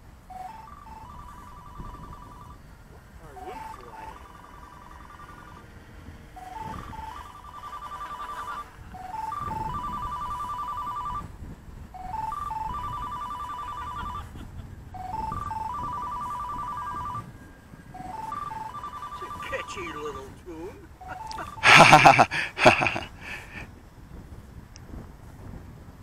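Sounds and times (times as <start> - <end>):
wind rumble on microphone: 0.0 - 26.0
electronic alert tune: 0.3 - 2.6, 3.4 - 5.6, 6.4 - 11.3, 12.0 - 14.2, 15.0 - 17.3, 18.0 - 20.2.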